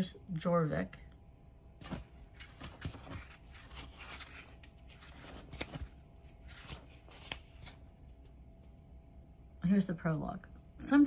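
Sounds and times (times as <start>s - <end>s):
book pages turning: 1.8s - 8.8s.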